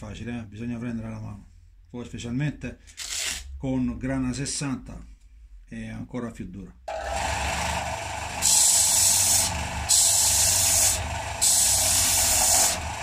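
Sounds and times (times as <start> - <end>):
sanding disc humming: 6.9 - 13.0
wood grinding hiss: 7.0 - 13.0.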